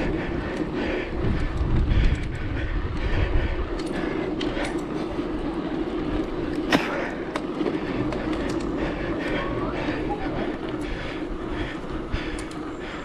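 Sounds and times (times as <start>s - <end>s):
bike tyre noise and rattle: 0.0s - 13.0s
wind buffeting microphone: 0.0s - 13.0s
small clicks: 3.7s - 5.0s, 12.3s - 12.8s.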